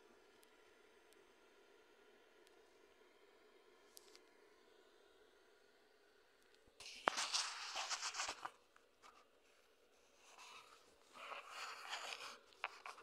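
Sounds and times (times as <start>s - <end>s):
scratchy rustling: 6.8s - 9.2s, 10.2s - 13.0s.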